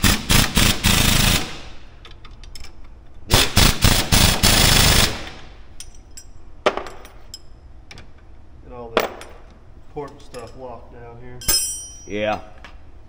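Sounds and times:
pneumatic impact wrench hammering: 0.0 - 1.9, 3.2 - 5.5.

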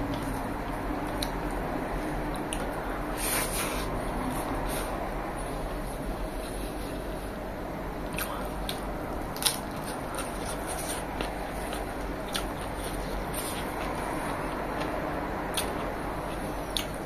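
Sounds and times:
chewing and wet squishing: 0.0 - 2.9, 8.0 - 17.0.

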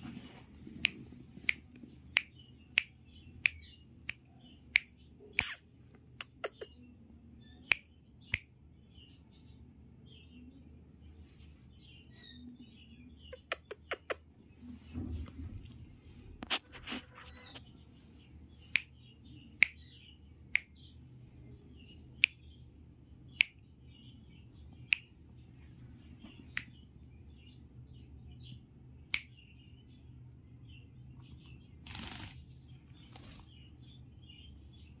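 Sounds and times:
parakeet chirping: 5.3 - 5.6.

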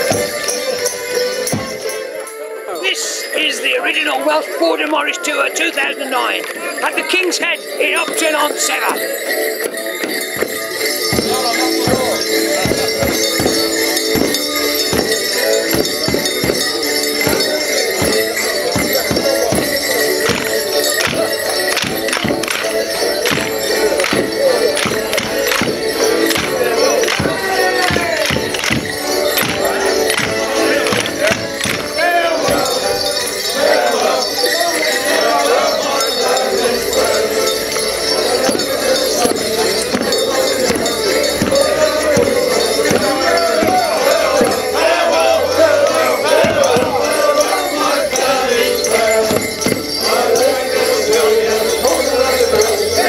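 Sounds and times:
folk dance tune: 0.0 - 53.0
jingling: 0.0 - 53.0
voices calling out: 0.0 - 53.0
steady beat: 10.1 - 33.0, 38.2 - 48.3, 48.9 - 51.6.

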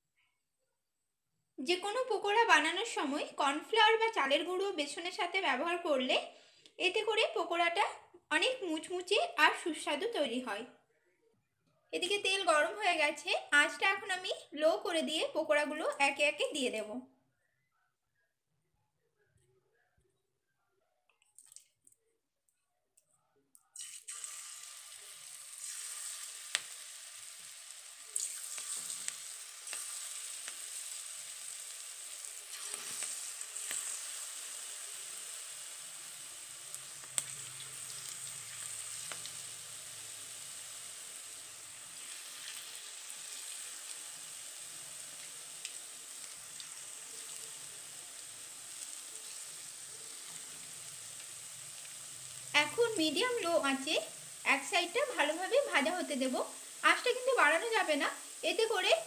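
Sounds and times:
batter sizzling in hot oil: 23.8 - 59.0.

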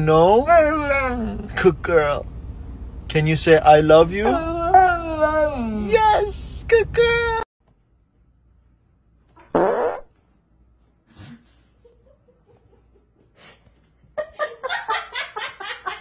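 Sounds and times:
person farting: 9.4 - 10.1.

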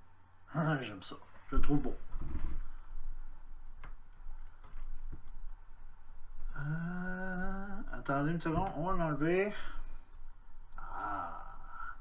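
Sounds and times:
man humming wordless hesitation: 6.4 - 8.0.

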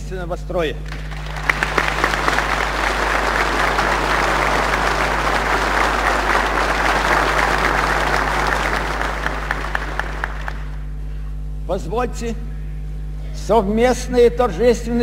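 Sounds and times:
audience applauding: 0.9 - 10.9.

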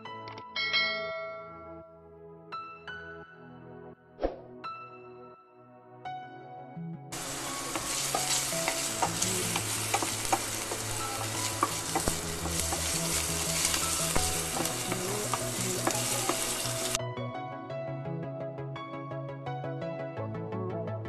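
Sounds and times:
ginger sizzling in hot oil: 7.2 - 17.0
wooden spatula scraping metal pan: 7.2 - 17.0.

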